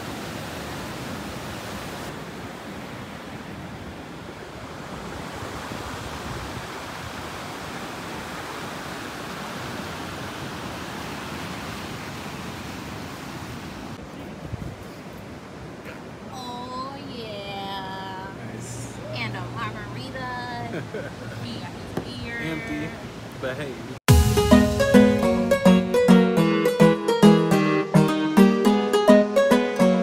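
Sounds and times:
waves breaking on stony beach: 0.0 - 16.3.

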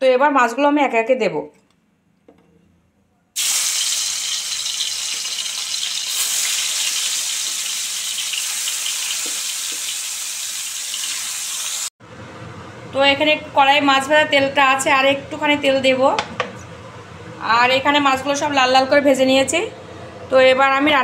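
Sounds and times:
fish sizzling in hot oil: 3.4 - 11.9.

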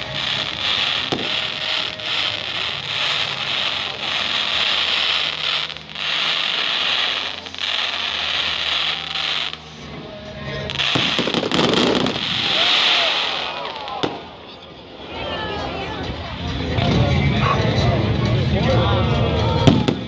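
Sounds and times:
sharp crack: 0.0 - 9.7, 10.7 - 14.4
firework fountains hissing: 0.0 - 16.8.

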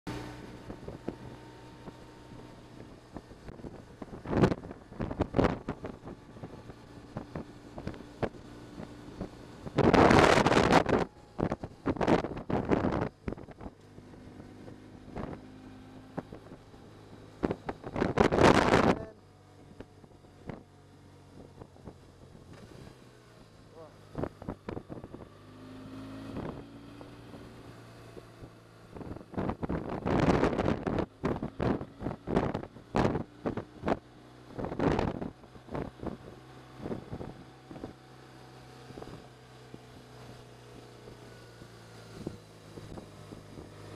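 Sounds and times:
motorcycle engine hum: 0.1 - 43.9
wind buffeting microphone: 0.6 - 15.5, 16.1 - 22.6, 24.0 - 25.4, 26.2 - 38.0.

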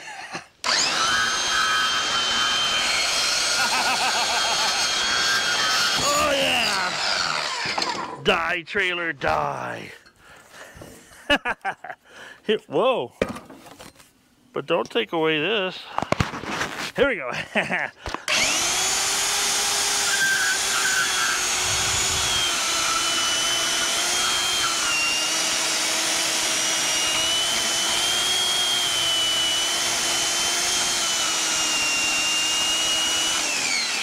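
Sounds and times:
bandsaw cutting metal tubing: 0.6 - 8.5, 18.3 - 34.0.

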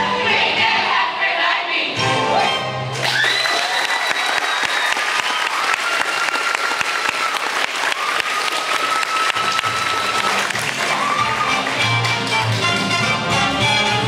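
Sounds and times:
audience applauding: 2.9 - 13.1.

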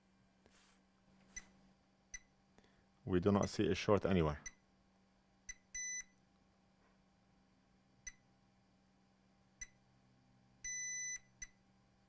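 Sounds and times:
multimeter beeping: 5.5 - 6.2, 10.6 - 11.6.

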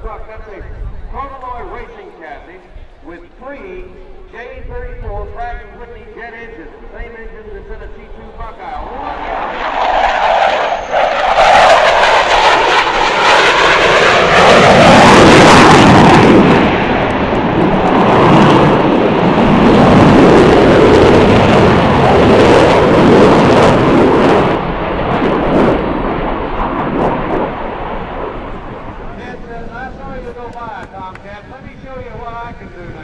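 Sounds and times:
jet engines roaring past: 0.0 - 33.0.

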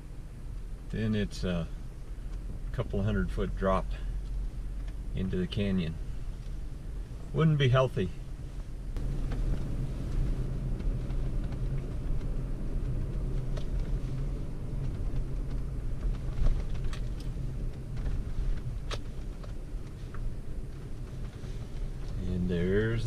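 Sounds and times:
engine and road rumble: 0.0 - 23.0
cab clicks and rattles: 9.0 - 22.2.

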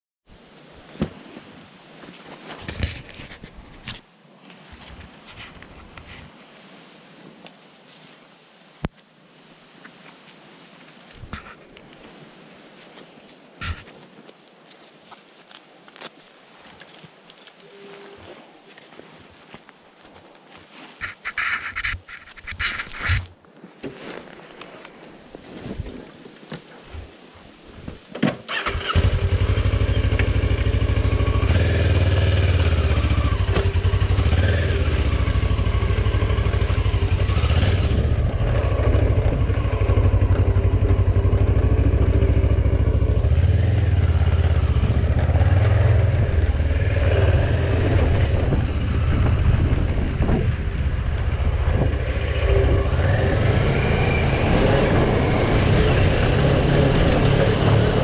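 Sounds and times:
motorcycle engine revving: 28.5 - 58.0.

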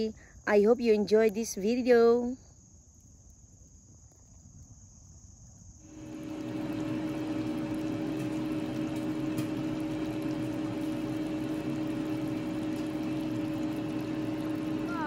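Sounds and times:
broth bubbling in a pan: 5.9 - 15.0
steady hum: 5.9 - 15.0.

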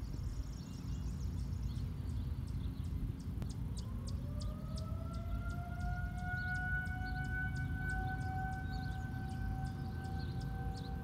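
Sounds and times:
distant warning siren winding up: 3.2 - 11.0.

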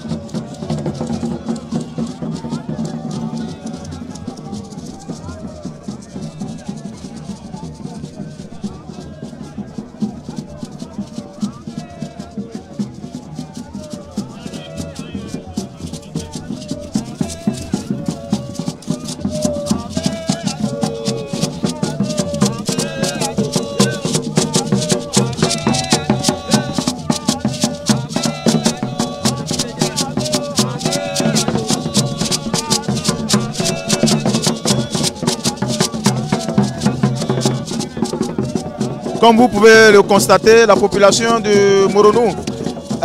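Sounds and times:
gourd rattle shaken: 0.0 - 43.0
hand drum: 0.0 - 43.0
voices singing: 0.0 - 43.0.

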